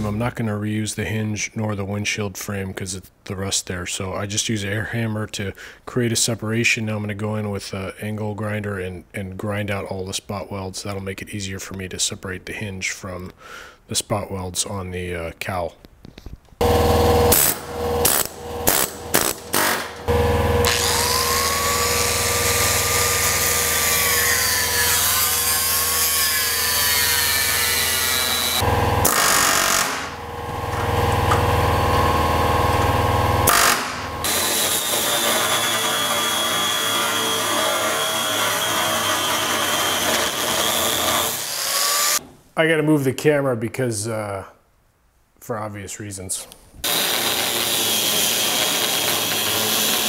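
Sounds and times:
angle grinder grinding steel: 16.6 - 42.2, 46.8 - 50.0.

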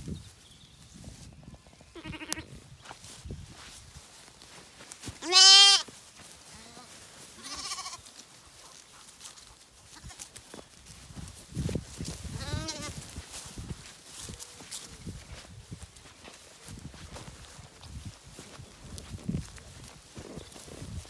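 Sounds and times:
lambs bleating: 1.9 - 2.5, 5.2 - 5.9, 6.5 - 8.1, 12.3 - 13.0.

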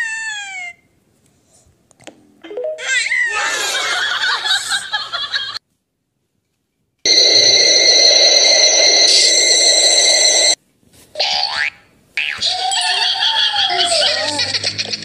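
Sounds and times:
comic laughter effect: 2.8 - 5.6, 12.4 - 15.0
steady electronic tone: 7.1 - 10.6.

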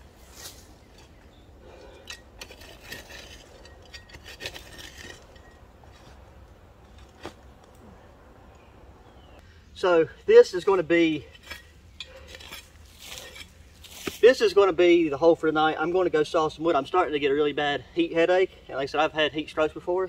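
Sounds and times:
utensil scraping metal container: 1.9 - 5.6.

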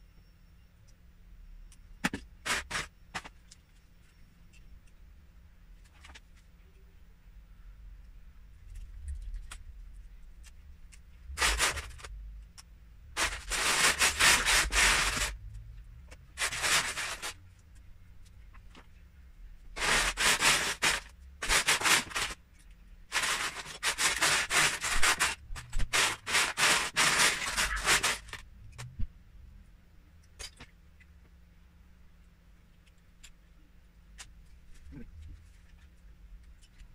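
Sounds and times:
plastic bricks rattling in tub: 13.2 - 15.4, 16.4 - 17.4, 19.8 - 22.4, 23.1 - 28.4.

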